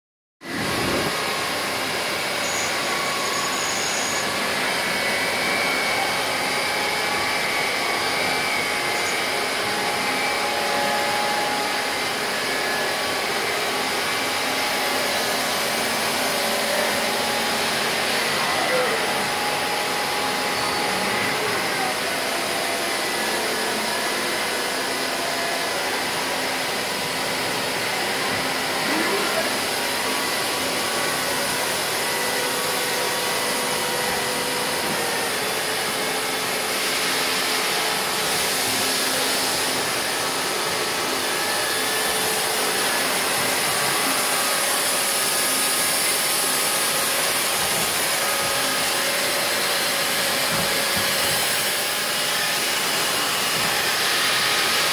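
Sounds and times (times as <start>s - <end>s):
machines running with hiss: 0.4s - 54.9s.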